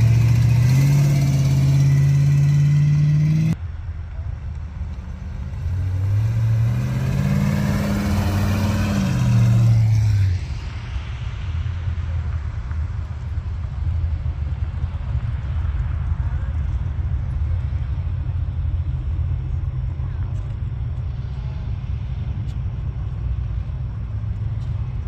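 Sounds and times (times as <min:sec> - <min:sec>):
car engine accelerating: 0:00.0 - 0:03.6, 0:04.9 - 0:10.6
steady engine hum: 0:00.0 - 0:25.0.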